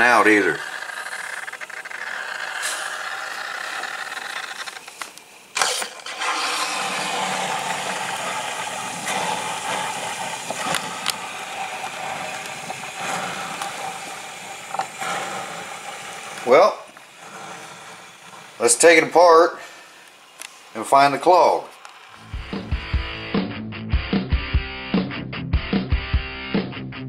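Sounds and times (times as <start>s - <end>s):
coffee maker hissing: 0.0s - 23.2s.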